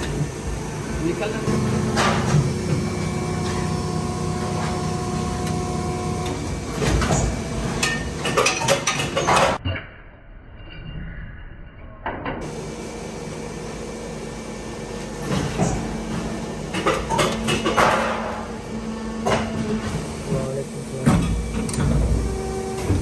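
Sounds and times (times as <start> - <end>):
thin machine whine: 0.0 - 8.2
machine humming: 0.0 - 9.6, 12.4 - 23.0
machine clunks and rattles: 1.5 - 3.7, 5.4 - 9.6, 15.2 - 18.6, 19.2 - 23.0.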